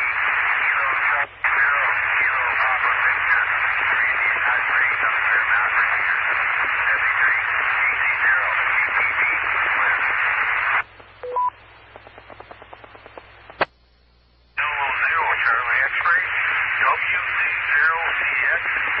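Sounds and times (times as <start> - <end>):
heavy radio static hiss: 0.0 - 13.8, 14.5 - 19.0
two-tone courtesy beeps: 11.2 - 11.6.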